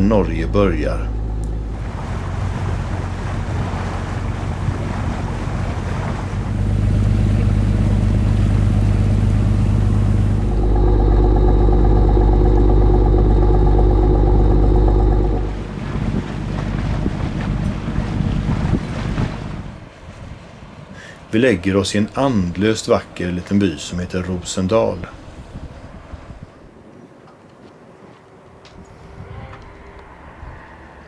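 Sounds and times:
steady hum with held tones: 0.0 - 3.2, 6.3 - 19.8
ship engine drone: 0.0 - 20.2
water noise: 0.0 - 26.8
wind on microphone: 1.0 - 20.5, 25.2 - 26.7, 28.7 - 31.0.

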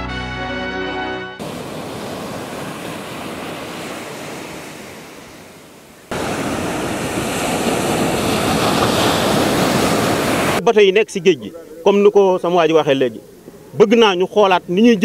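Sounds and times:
ocean surf breaking: 1.4 - 10.7
steady outdoor noise: 1.4 - 15.0.

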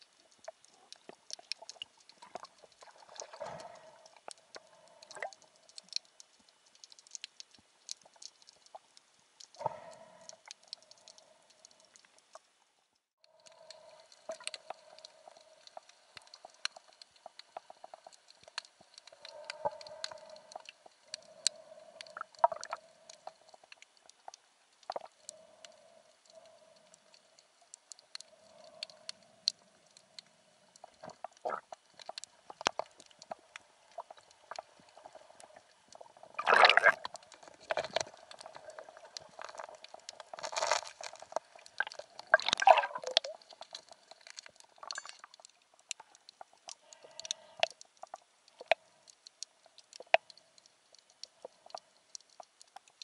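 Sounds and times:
faint steady hum: 0.0 - 53.0
underwater crackle of clicks: 0.0 - 53.0
rushes of water noise: 32.5 - 45.2.

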